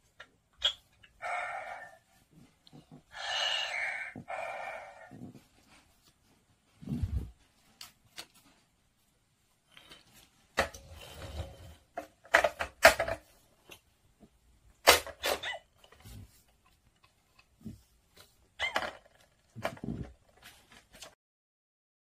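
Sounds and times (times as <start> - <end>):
plastic toys clicking and knocking: 11.9 - 13.9, 14.8 - 17.6, 18.6 - 21.2.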